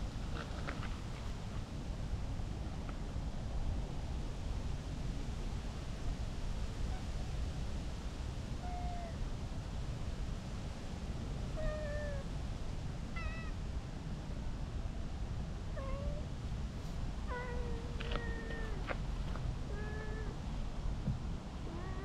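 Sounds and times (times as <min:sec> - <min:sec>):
cat meowing: 0:08.6 - 0:09.2, 0:11.6 - 0:12.3, 0:13.2 - 0:13.6, 0:19.7 - 0:20.4.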